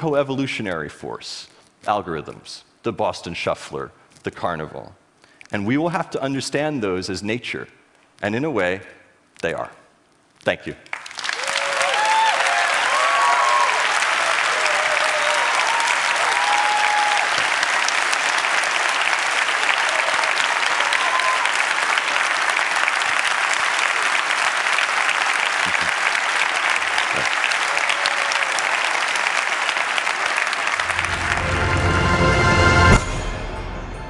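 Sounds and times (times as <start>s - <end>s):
large audience applauding: 10.9s - 32.3s
music: 30.8s - 34.0s.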